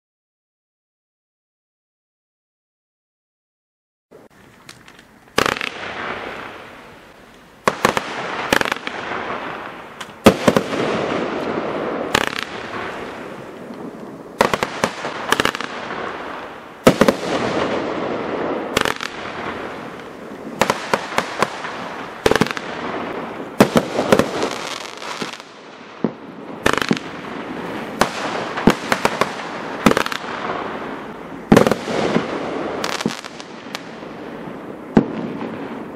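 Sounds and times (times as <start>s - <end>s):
crackling firework stars: 4.1s - 35.9s
firework pops: 4.5s - 6.6s, 10.0s - 15.8s, 31.5s - 33.9s.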